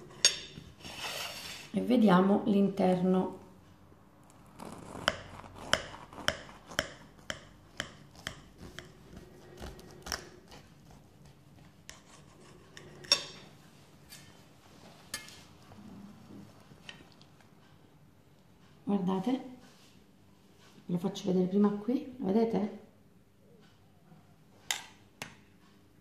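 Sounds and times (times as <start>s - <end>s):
knife sawing through pastry crust: 0.8s - 1.7s, 4.4s - 13.0s.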